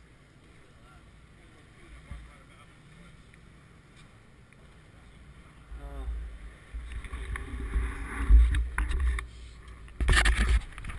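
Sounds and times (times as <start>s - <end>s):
wind rumble on microphone: 4.9s - 10.9s.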